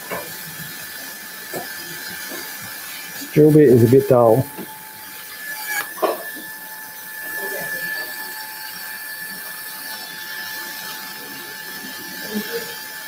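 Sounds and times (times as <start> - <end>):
bone drill whining: 4.4 - 13.0.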